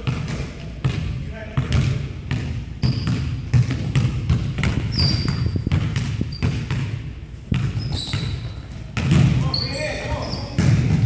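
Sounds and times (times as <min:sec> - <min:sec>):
basketball bouncing on wood floor: 0:00.0 - 0:11.0
sneaker squeaks: 0:02.8 - 0:11.0.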